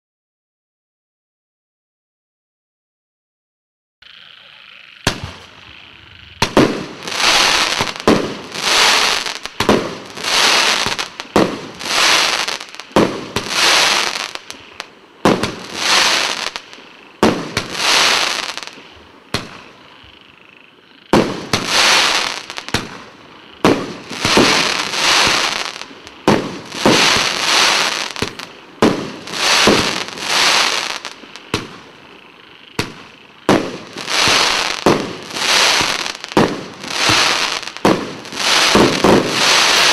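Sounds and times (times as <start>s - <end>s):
firework shots firing: 5.0s - 5.7s, 6.4s - 19.7s, 21.1s - 32.0s, 32.8s - 39.9s
hiss of shells bursting: 32.8s - 39.9s.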